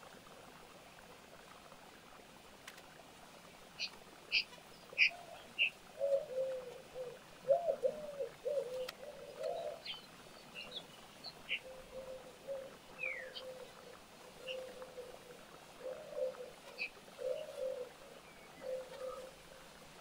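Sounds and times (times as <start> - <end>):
small birds chirping: 3.8 - 19.5
pigeon cooing: 5.0 - 10.0, 11.5 - 19.5.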